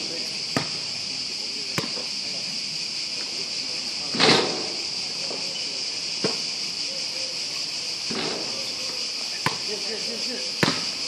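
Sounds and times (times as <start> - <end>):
insects droning in trees: 0.0 - 11.0
ball bouncing on court: 0.5 - 0.8, 1.8 - 2.0, 9.4 - 9.7, 10.6 - 10.9.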